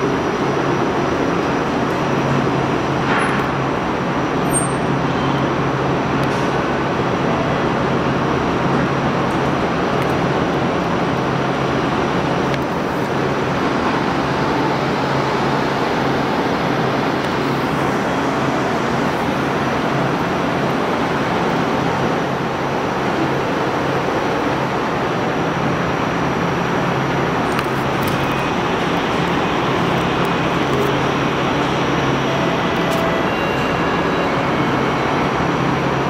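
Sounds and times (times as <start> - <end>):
streetcar hum and rumble: 0.0 - 36.0.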